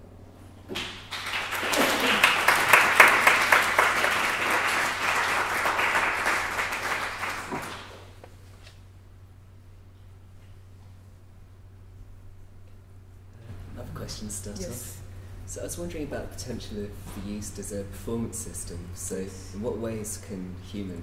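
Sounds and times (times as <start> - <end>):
audience applauding: 0.7 - 8.2.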